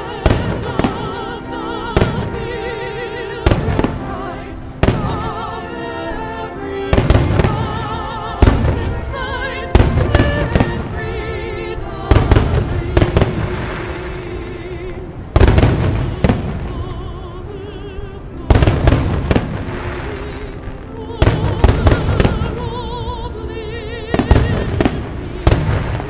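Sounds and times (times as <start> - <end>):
music with wavering melody: 0.0 - 26.0
firework shells booming: 15.4 - 16.7.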